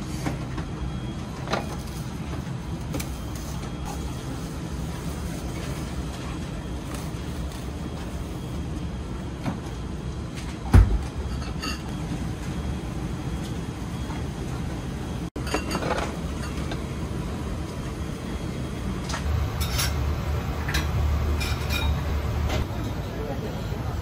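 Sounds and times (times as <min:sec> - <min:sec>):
low kitchen hum: 0:00.0 - 0:24.0
porcelain dishes clinking: 0:15.4 - 0:16.7, 0:20.8 - 0:22.2.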